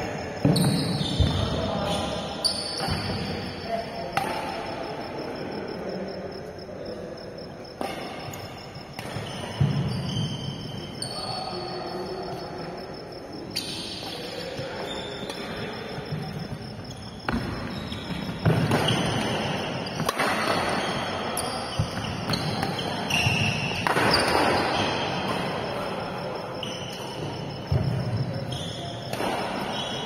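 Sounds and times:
rackets hitting shuttlecock: 20.0s - 20.8s, 21.9s - 24.6s.

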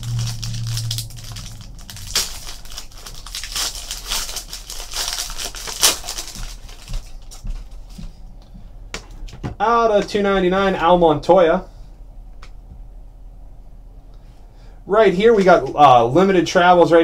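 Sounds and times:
foil wrapper crinkling and tearing: 0.0s - 7.9s.

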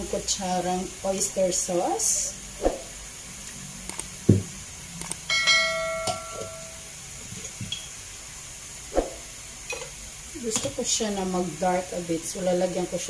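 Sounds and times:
faint steady hiss: 0.0s - 13.0s
bell chime: 5.3s - 6.9s.

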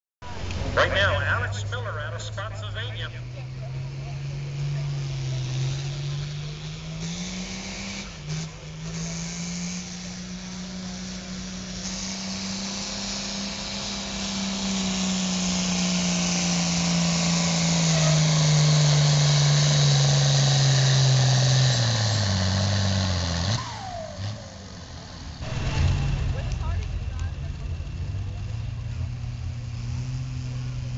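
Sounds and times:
diesel tractor engine at full throttle: 0.2s - 30.9s
loud rushing noise: 25.4s - 29.8s.

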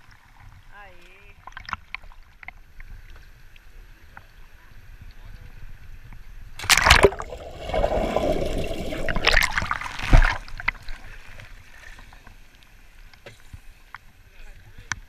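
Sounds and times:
bubbling water: 6.6s - 11.1s
water splashing: 6.6s - 12.3s.

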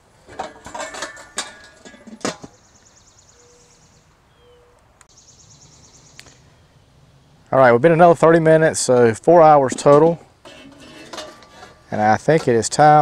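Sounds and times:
metal grill lid clanking: 0.2s - 2.6s, 8.8s - 12.9s.

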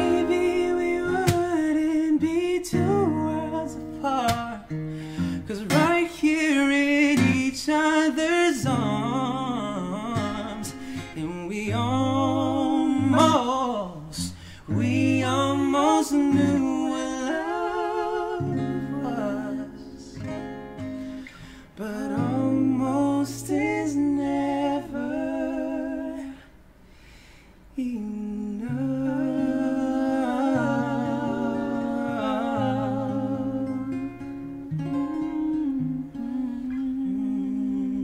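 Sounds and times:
man humming and singing: 0.0s - 20.2s, 34.6s - 38.0s
acoustic guitar: 0.0s - 38.0s.

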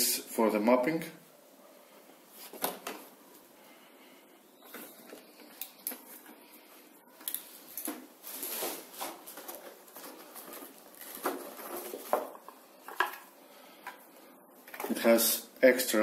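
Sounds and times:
rustling of unpacking: 4.6s - 15.1s.

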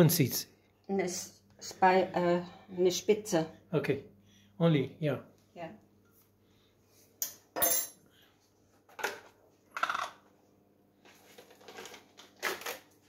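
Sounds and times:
spoon and jars clinking on stone: 7.2s - 8.0s.

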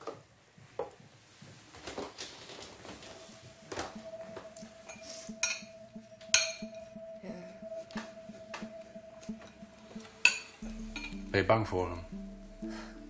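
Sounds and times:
soft background music: 0.0s - 13.0s
crockery and cutlery clinking: 4.9s - 5.7s, 6.3s - 6.8s, 10.2s - 11.2s.

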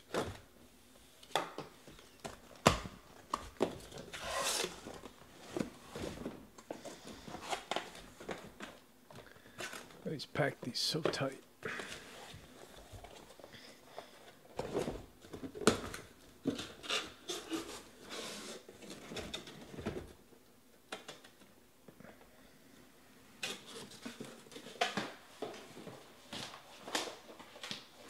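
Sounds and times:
cardboard box scraping: 4.1s - 4.8s.

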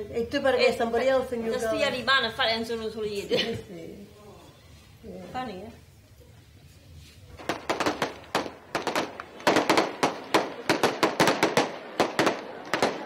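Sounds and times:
firecrackers going off: 7.2s - 13.0s.

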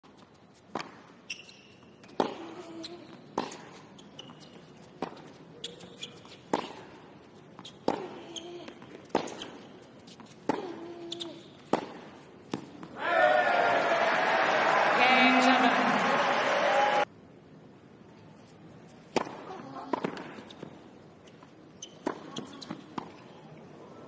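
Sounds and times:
shoes squeaking on court: 0.0s - 12.9s, 18.4s - 23.4s
tennis ball bouncing: 0.6s - 13.0s, 19.1s - 20.8s, 21.8s - 23.2s
racket striking tennis ball: 0.7s - 1.0s, 2.0s - 2.7s, 3.3s - 3.8s, 6.5s - 7.0s, 7.7s - 13.0s, 19.1s - 20.6s.

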